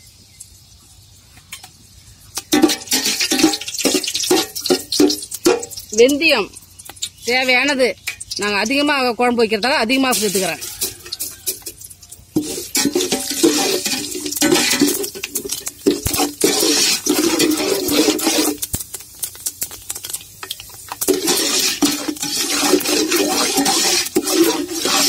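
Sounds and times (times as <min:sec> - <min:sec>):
spices sizzling in hot oil: 0:00.0 - 0:25.0
ladle scraping pot: 0:02.4 - 0:06.0, 0:10.1 - 0:19.0, 0:20.0 - 0:25.0.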